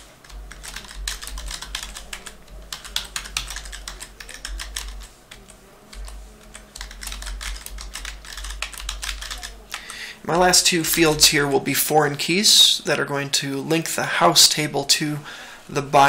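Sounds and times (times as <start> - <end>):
computer keyboard typing: 0.0 - 11.4.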